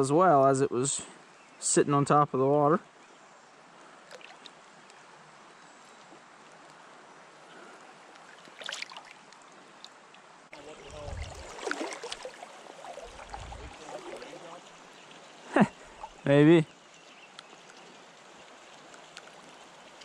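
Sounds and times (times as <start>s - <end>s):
stream water running: 2.8s - 20.0s
splash: 4.1s - 4.6s, 8.3s - 9.3s, 10.6s - 14.7s
low rumbling bumps underwater: 10.8s - 14.3s.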